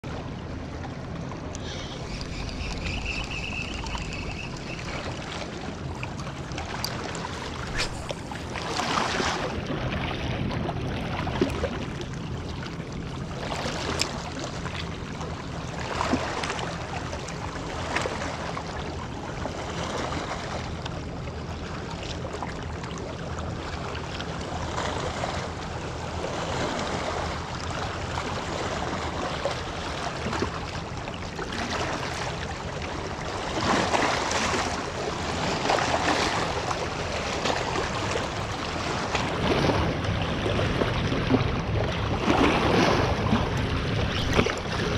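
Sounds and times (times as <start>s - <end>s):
steady low hum: 0.1s - 11.2s, 34.7s - 44.9s
waves lapping on rocky shore: 1.4s - 20.7s, 26.2s - 44.9s
wind on microphone: 1.6s - 6.1s, 7.2s - 10.0s.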